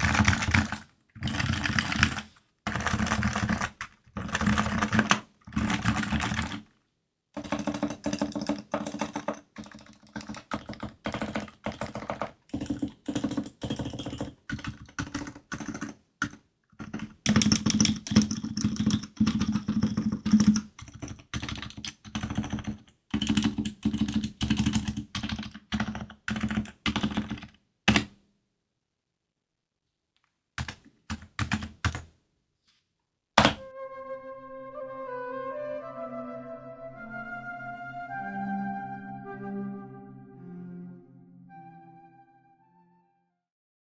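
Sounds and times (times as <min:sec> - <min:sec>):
keyboard typing: 0:00.0 - 0:06.7, 0:07.4 - 0:28.2, 0:30.6 - 0:32.1.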